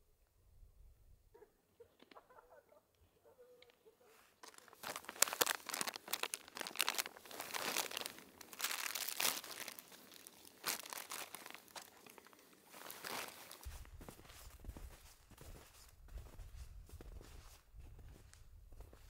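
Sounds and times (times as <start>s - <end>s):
plastic bag crinkling: 4.4s - 13.6s.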